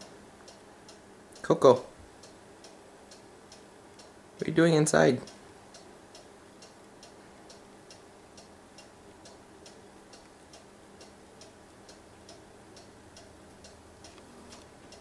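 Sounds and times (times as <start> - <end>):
mechanical ticking: 5.2 - 15.0.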